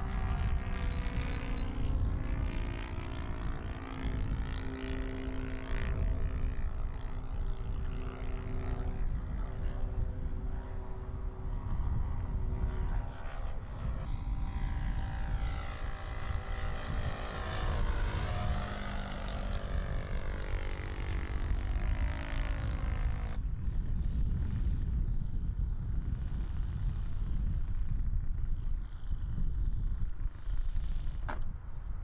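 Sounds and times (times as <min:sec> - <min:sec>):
model airplane propeller droning: 0:00.0 - 0:32.0.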